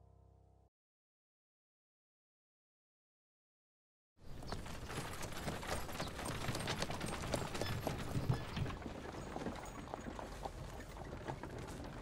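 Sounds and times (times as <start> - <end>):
hooves clip-clopping on stone: 4.3 - 12.0.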